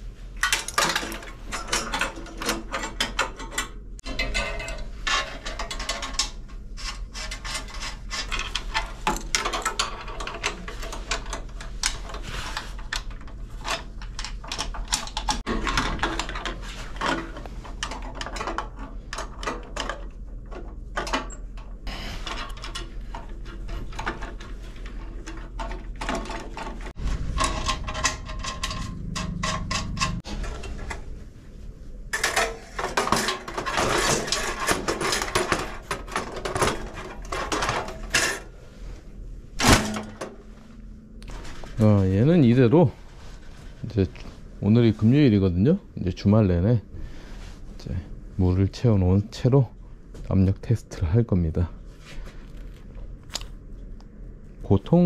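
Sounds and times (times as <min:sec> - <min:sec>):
steady low hum: 0:00.0 - 0:55.0
hand tools clicking on metal pipes: 0:00.4 - 0:31.0.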